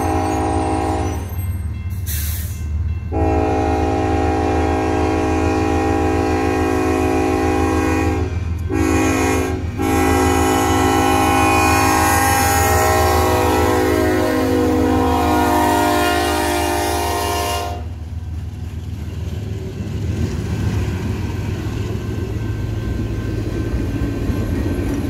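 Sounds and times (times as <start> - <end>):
locomotive air horn blasts: 0.0 - 1.2, 3.1 - 18.0
locomotive engine drone: 0.0 - 25.0.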